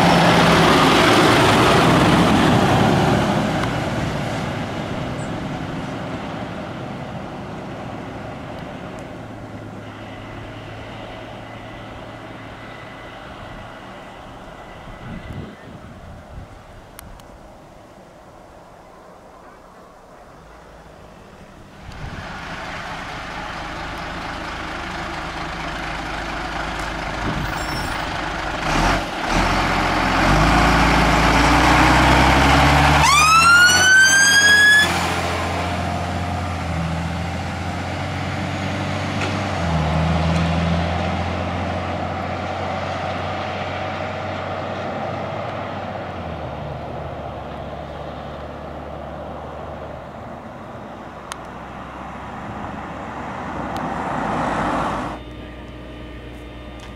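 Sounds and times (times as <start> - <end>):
fire engine diesel engine: 0.0 - 56.9
siren rising wail: 31.6 - 35.8.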